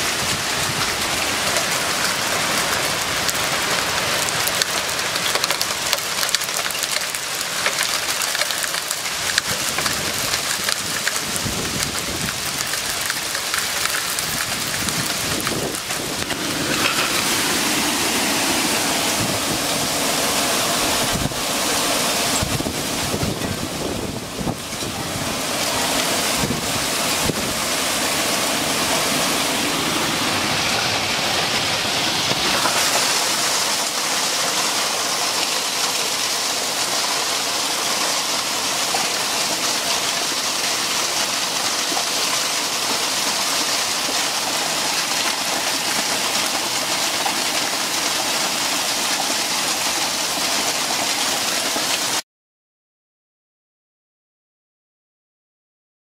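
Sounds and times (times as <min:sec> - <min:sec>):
hail and heavy rain pouring: 0:00.0 - 0:52.2
wind buffeting microphone: 0:09.4 - 0:13.1, 0:14.1 - 0:20.1, 0:22.2 - 0:25.5, 0:26.2 - 0:27.7.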